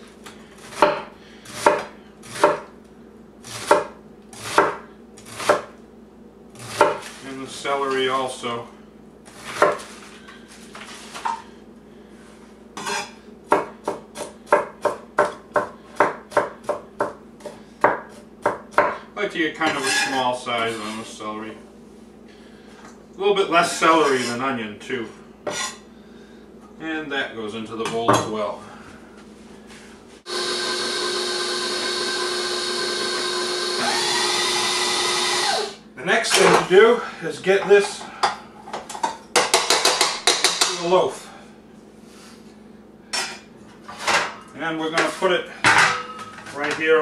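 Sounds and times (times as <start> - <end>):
knife chopping on cutting board: 0.7 - 2.7, 3.5 - 5.7, 6.6 - 7.2, 12.8 - 19.0
electric mixer running: 30.3 - 35.8.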